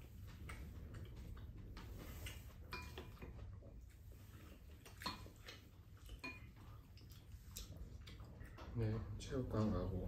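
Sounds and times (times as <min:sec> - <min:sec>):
low room hum: 0:00.0 - 0:10.0
utensils clinking on bowls: 0:02.7 - 0:03.3, 0:06.1 - 0:06.6.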